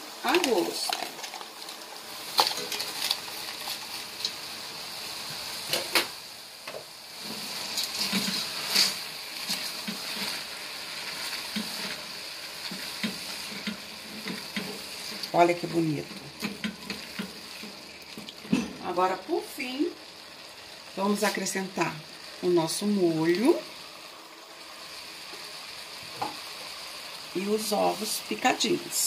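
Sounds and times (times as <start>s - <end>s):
food sizzling in a pot: 0.0s - 29.0s
spatula scraping a pot: 7.3s - 15.3s.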